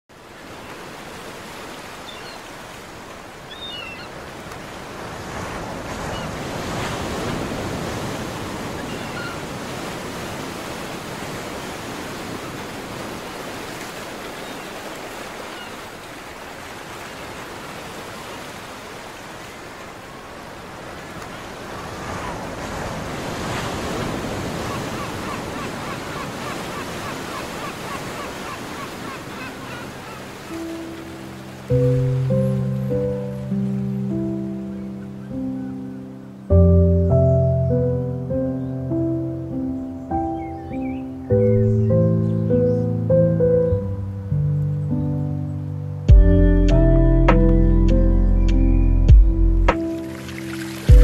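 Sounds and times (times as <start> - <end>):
waves breaking on beach: 0.1 - 36.4, 49.7 - 51.0.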